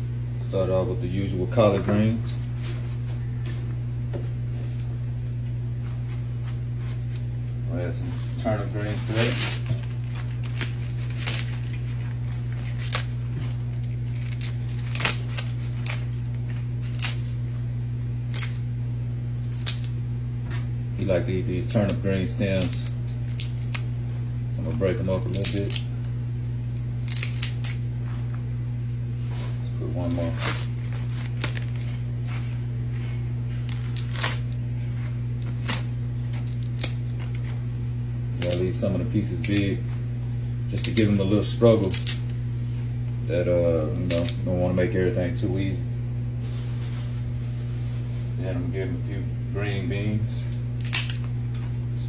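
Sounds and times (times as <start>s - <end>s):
steady low hum: 0.0s - 52.0s
leaves rustling and crinkling: 5.4s - 17.5s, 24.7s - 45.6s, 46.4s - 48.7s.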